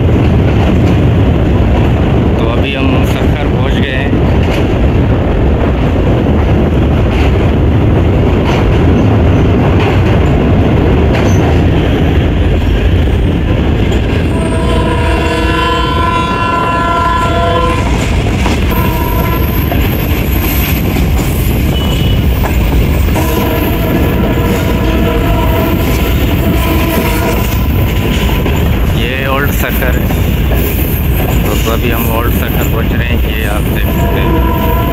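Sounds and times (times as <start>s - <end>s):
train wheels rumbling: 0.0s - 34.9s
train horn: 14.2s - 18.0s, 18.7s - 20.0s, 21.7s - 22.3s, 23.1s - 27.6s, 33.8s - 34.9s.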